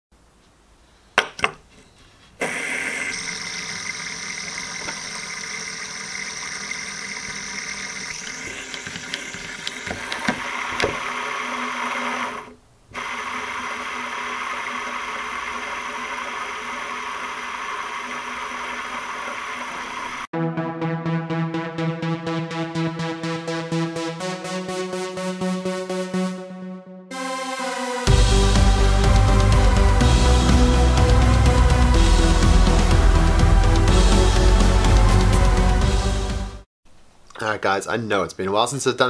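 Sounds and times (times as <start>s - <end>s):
fidget spinner bearing whirring: 2.6s - 20.2s
fidget spinner clicks: 4.6s - 10.9s.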